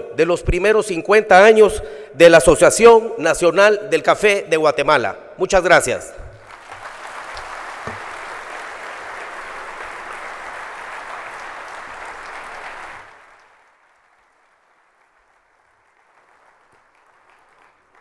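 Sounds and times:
audience applauding: 6.3 - 18.0.

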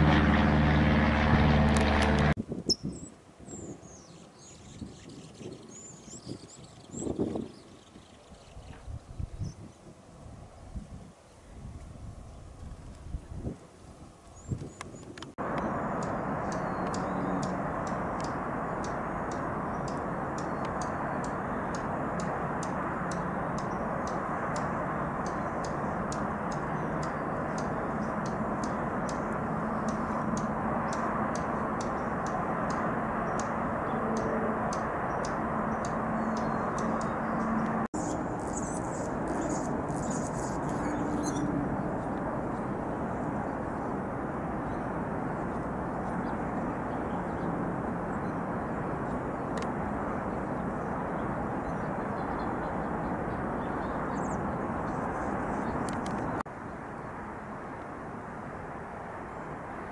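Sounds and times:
bird twittering: 15.6 - 41.5
bird calling: 15.8 - 41.5.

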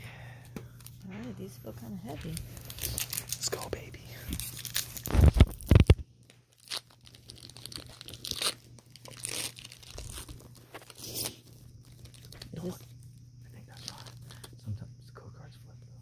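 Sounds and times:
foil wrappers crinkling and tearing: 1.9 - 13.0, 13.6 - 14.6.

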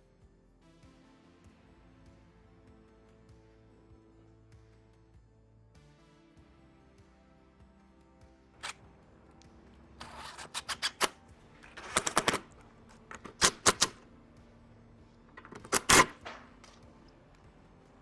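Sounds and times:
drill clicking: 11.8 - 12.5, 13.1 - 14.0, 15.4 - 16.4.

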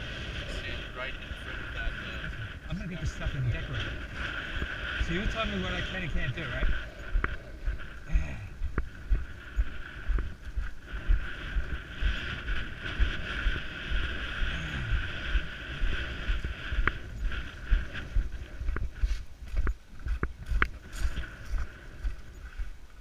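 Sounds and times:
steady hiss: 0.0 - 23.0
wind buffeting microphone: 0.0 - 23.0.

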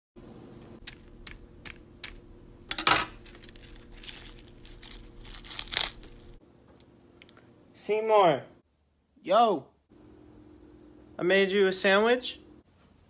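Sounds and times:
potato chips crunching: 3.1 - 6.4.

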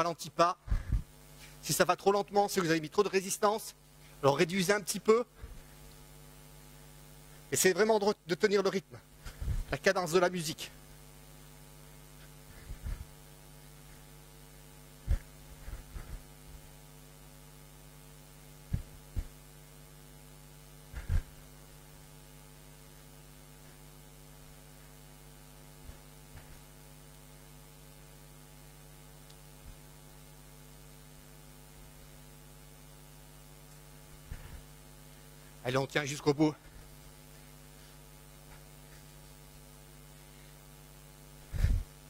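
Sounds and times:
electrical hum: 0.0 - 42.0.

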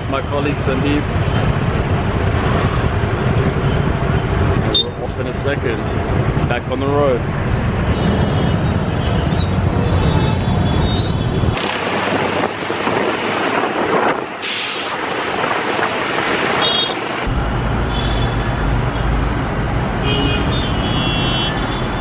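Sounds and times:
motorcycle and bus engines: 0.0 - 22.0
horns honking: 17.9 - 18.6, 20.0 - 22.0.

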